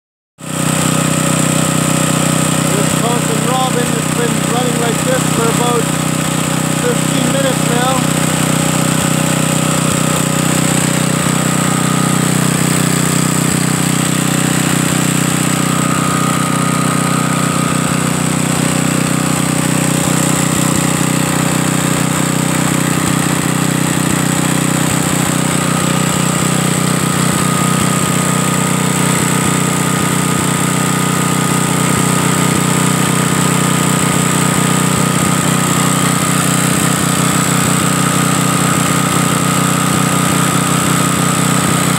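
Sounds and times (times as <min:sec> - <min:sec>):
single-cylinder engine running: 0:00.4 - 0:41.9.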